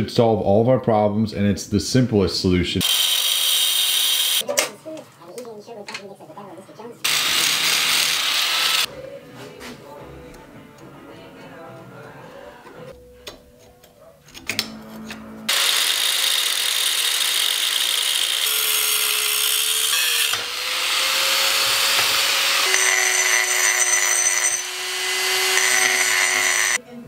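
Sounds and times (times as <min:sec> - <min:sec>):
angle grinder cutting steel: 0:02.8 - 0:04.4, 0:07.0 - 0:08.9, 0:15.5 - 0:26.8
handheld power tool whine: 0:02.8 - 0:04.4, 0:07.1 - 0:08.9, 0:15.5 - 0:26.8.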